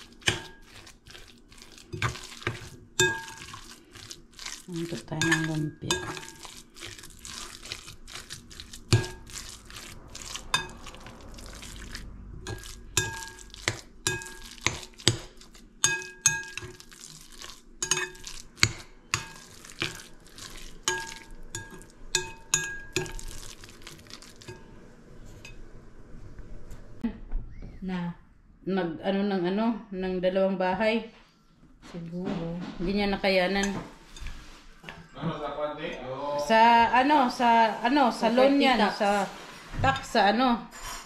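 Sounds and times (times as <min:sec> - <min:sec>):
metal fork clinking against glass bowl: 0:01.9 - 0:03.6, 0:05.1 - 0:06.6, 0:12.4 - 0:15.2, 0:15.8 - 0:16.9, 0:17.8 - 0:20.0, 0:20.8 - 0:23.5.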